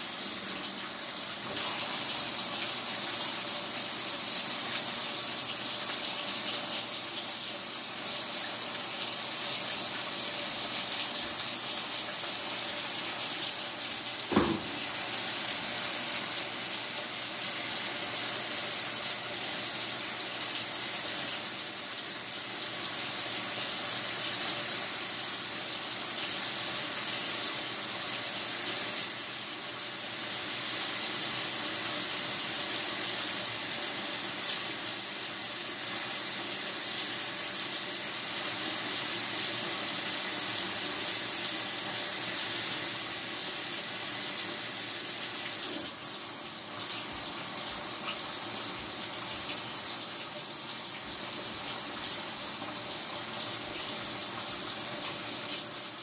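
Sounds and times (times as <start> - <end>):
water spraying into washing machine: 0.0 - 20.0.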